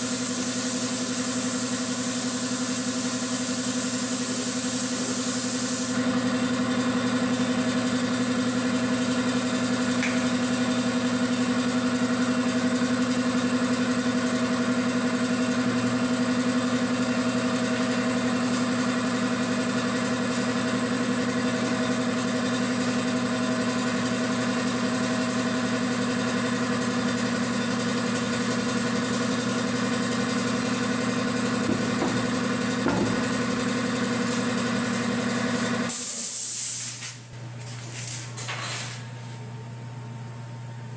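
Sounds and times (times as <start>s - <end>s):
spray gun hissing: 0.0s - 6.0s, 35.9s - 37.0s
air compressor humming: 0.0s - 40.9s.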